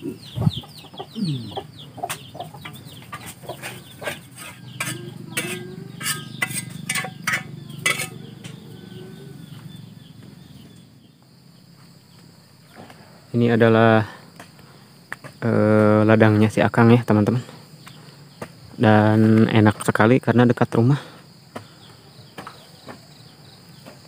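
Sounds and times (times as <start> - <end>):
chickens clucking: 0.0 - 13.2.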